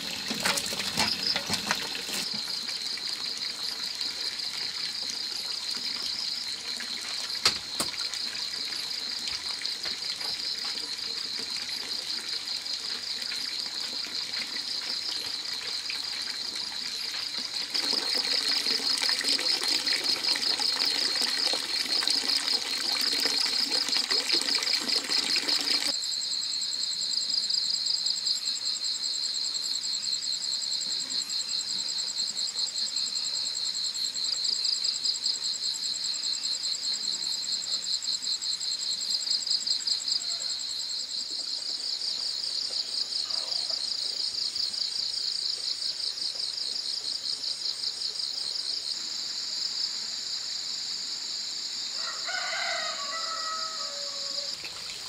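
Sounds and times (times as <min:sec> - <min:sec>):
insects trilling: 0:00.0 - 0:55.0
higher insect trill: 0:51.4 - 0:55.0.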